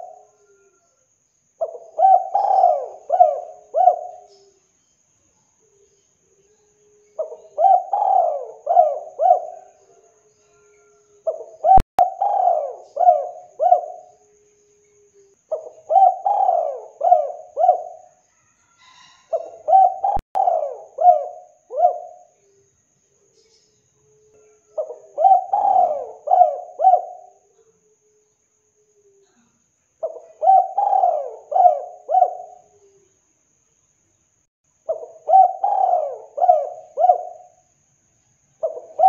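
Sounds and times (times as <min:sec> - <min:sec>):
dove cooing: 0:00.0 - 0:00.8, 0:01.6 - 0:04.6, 0:06.9 - 0:18.2, 0:18.8 - 0:22.6, 0:24.0 - 0:28.2, 0:30.0 - 0:33.1, 0:34.9 - 0:37.6, 0:38.6 - 0:39.0.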